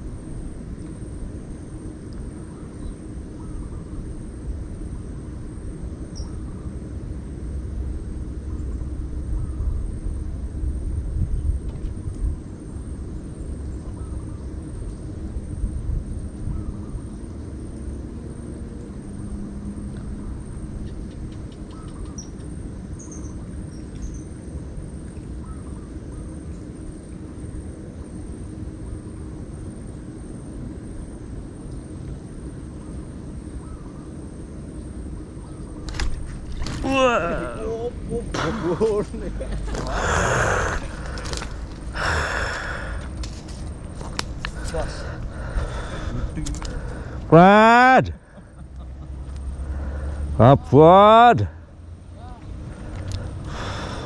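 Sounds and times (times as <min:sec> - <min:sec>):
low outdoor rumble: 0:00.0 - 0:54.0
bird chirps: 0:20.8 - 0:24.3.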